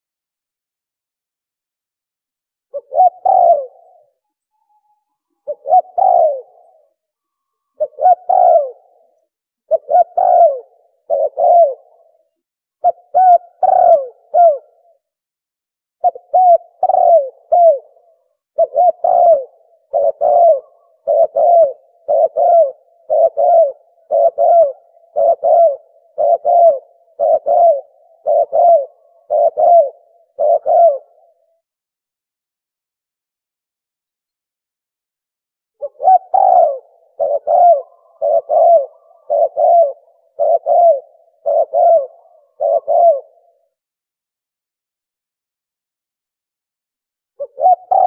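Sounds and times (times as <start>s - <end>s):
dove cooing: 2.7s - 4.3s, 5.3s - 7.0s, 7.7s - 15.0s, 16.0s - 31.6s, 35.8s - 43.8s, 47.4s - 48.0s.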